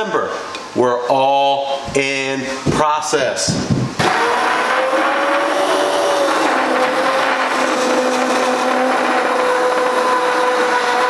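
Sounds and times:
immersion blender whining: 0:04.0 - 0:11.0.

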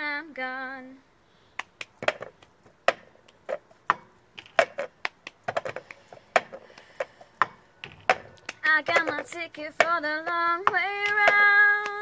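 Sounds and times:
hand claps: 0:01.6 - 0:02.0, 0:08.1 - 0:09.9, 0:10.7 - 0:12.0.

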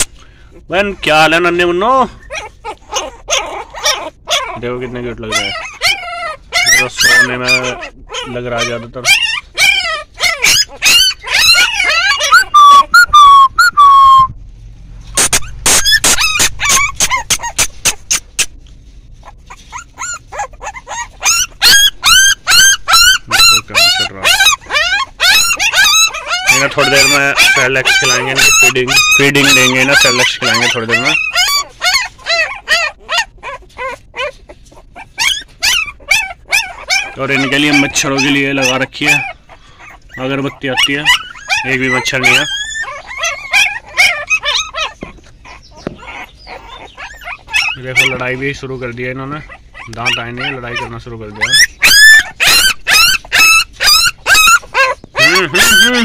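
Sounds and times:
puppies whining and yelping: 0:00.0 - 0:14.4, 0:15.0 - 0:56.0.

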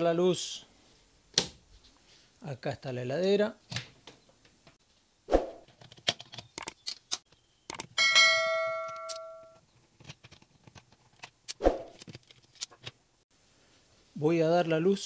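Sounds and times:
bell-like chime: 0:08.0 - 0:09.6.

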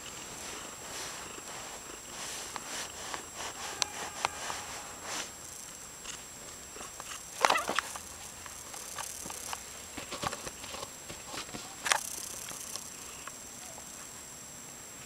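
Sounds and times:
rustles and light knocks: 0:06.1 - 0:12.8
loud scuffle: 0:07.4 - 0:08.0.

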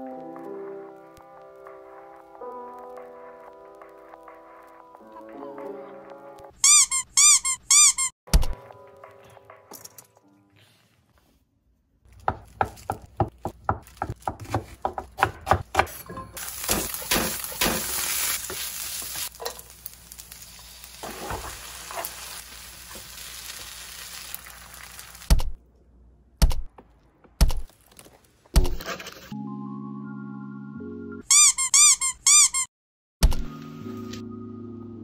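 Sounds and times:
rice sizzling in a pan: 0:16.4 - 0:25.3.

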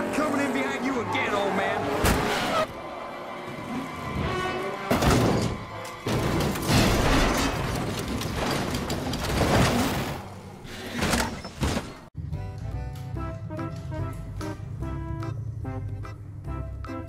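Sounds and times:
race car crashing and tumbling: 0:03.5 - 0:12.1
music: 0:12.2 - 0:17.0.

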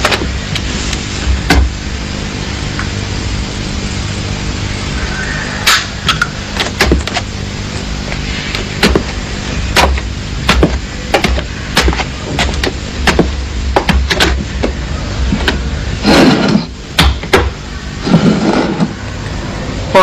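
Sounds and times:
steady low hum: 0:00.0 - 0:20.0
sharp knocks: 0:05.7 - 0:07.2, 0:08.8 - 0:14.8, 0:17.0 - 0:17.6.

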